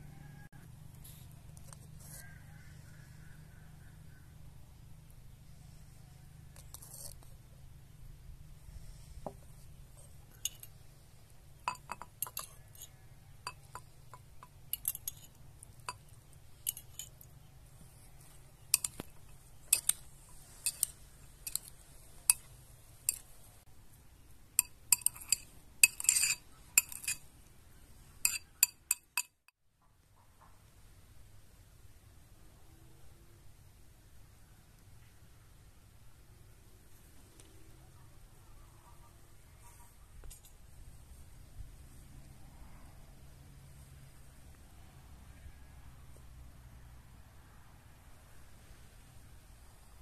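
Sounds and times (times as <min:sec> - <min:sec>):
cutlery clinking against plates: 0:11.7 - 0:17.2, 0:18.8 - 0:20.0, 0:24.6 - 0:27.2, 0:28.2 - 0:29.4.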